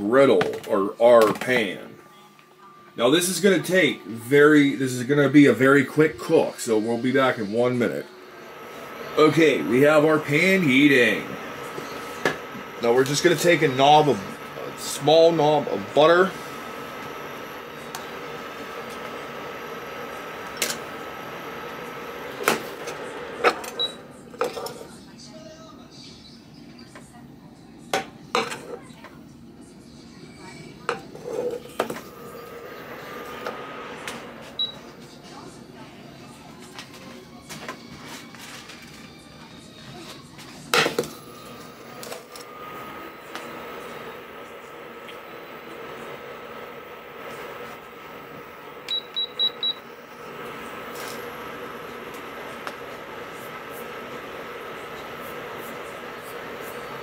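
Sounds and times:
faint high whine: 0:03.0 - 0:25.1, 0:31.6 - 0:36.5, 0:40.8 - 0:57.0
induction cooktop humming: 0:03.0 - 0:57.0.

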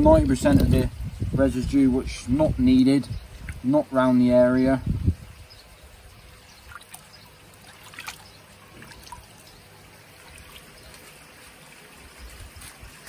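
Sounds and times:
water trickling in plastic tub: 0:00.0 - 0:13.0
small water splashes: 0:03.3 - 0:03.8, 0:05.4 - 0:13.0.

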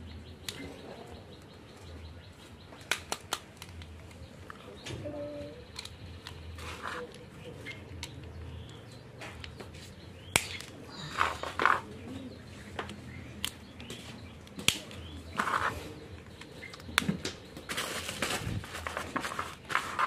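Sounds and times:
fingers rustling on plastic figure: 0:17.8 - 0:20.0.

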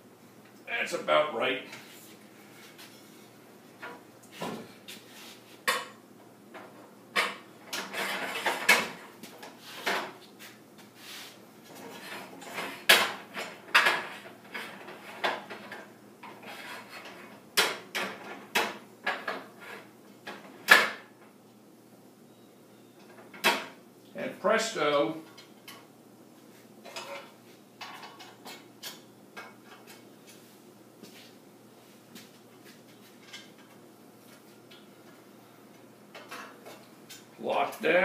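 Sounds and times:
metal scrape: 0:16.4 - 0:17.3.

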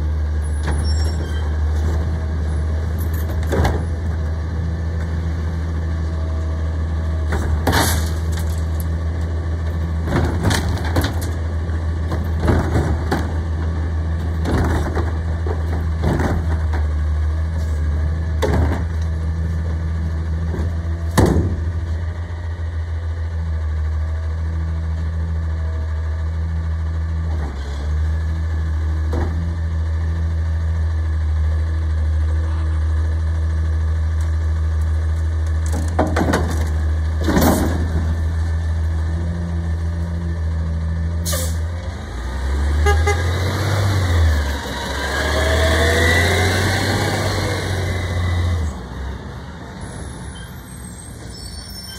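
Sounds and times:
garbage truck diesel engine: 0:00.0 - 0:51.9.

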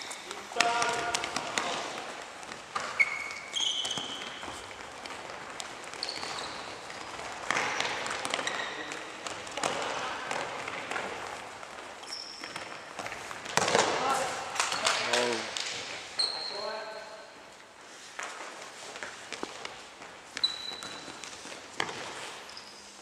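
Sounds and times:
shoe soles squeaking on gym floor: 0:00.0 - 0:09.3, 0:11.9 - 0:13.3, 0:14.7 - 0:15.3, 0:16.0 - 0:17.4, 0:20.2 - 0:23.0
footsteps: 0:00.0 - 0:16.4.

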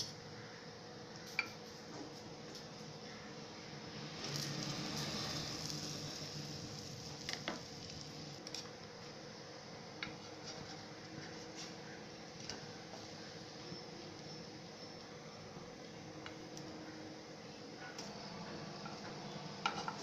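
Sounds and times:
bread sizzling in butter: 0:04.0 - 0:08.6.

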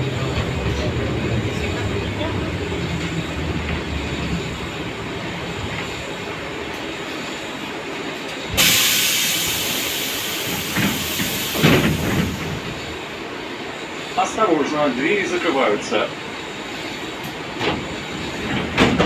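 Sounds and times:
tram low running noise: 0:00.0 - 0:19.0
compressed air hissing: 0:08.6 - 0:13.1.

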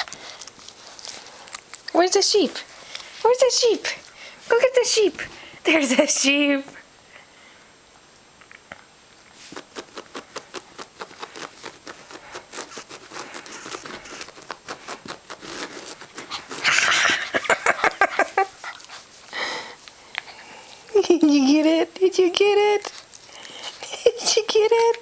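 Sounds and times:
puppy snuffling: 0:09.3 - 0:21.8
puppy chewing plush toy: 0:09.4 - 0:19.2.

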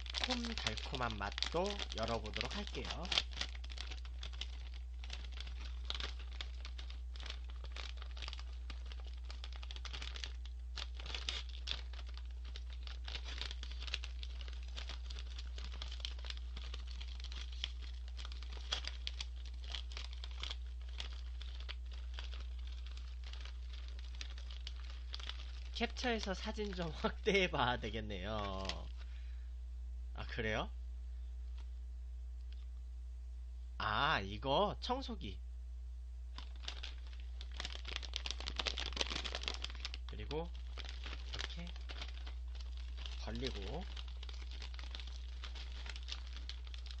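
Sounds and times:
snack bag crinkling and tearing: 0:00.0 - 0:29.1, 0:36.3 - 0:47.0
low hum: 0:26.7 - 0:33.9, 0:35.2 - 0:37.6.

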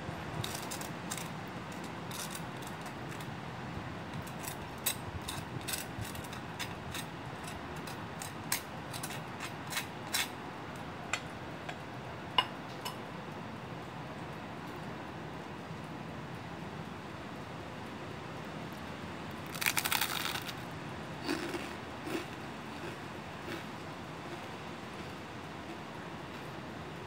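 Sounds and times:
knife scraping toast: 0:04.4 - 0:10.4.

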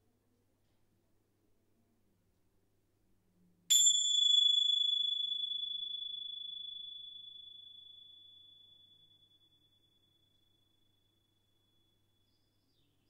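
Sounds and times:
small metal chime ringing: 0:03.7 - 0:11.9.

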